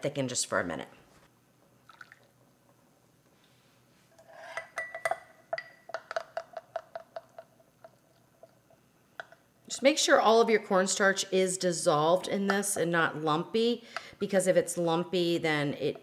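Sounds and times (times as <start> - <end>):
spoon clinking against glass bowl: 4.5 - 7.4.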